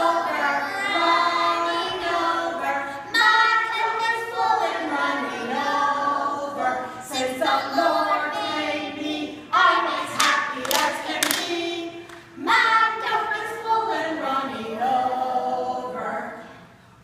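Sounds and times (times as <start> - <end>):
children singing: 0.0 - 16.6
hand claps: 10.2 - 12.3.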